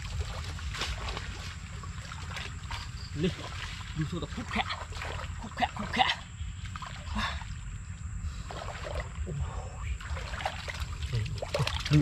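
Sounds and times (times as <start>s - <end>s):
muddy water sloshing and splashing: 0.0s - 12.0s.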